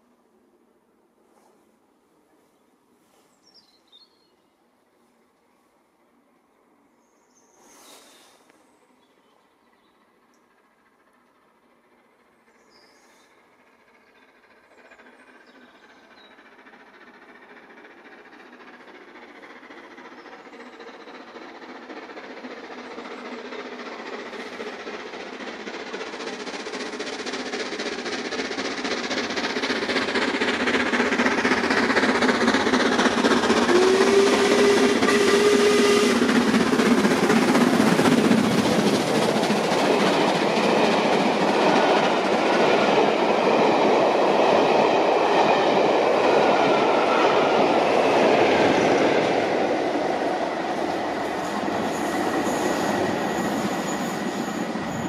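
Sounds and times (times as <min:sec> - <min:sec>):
steam train passing at speed: 0:00.0 - 0:55.0.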